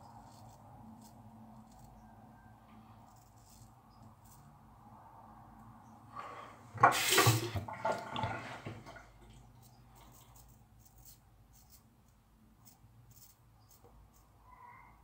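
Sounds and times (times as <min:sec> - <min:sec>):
tap water splashing into sink: 0:06.8 - 0:09.1.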